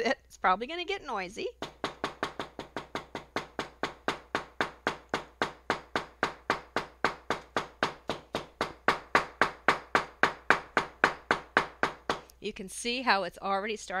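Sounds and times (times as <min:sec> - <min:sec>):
hammer tapping on paper: 0:01.6 - 0:12.3.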